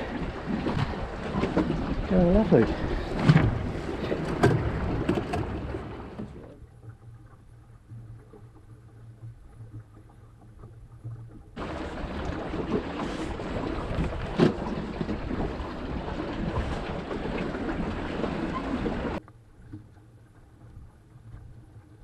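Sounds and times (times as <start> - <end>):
wind buffeting microphone: 0.0 - 6.3, 11.6 - 19.2
water rushing along boat hull: 0.0 - 22.0.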